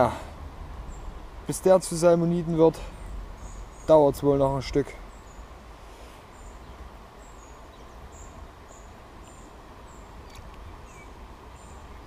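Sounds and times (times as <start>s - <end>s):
bird chirping: 2.7s - 5.6s, 6.2s - 12.0s.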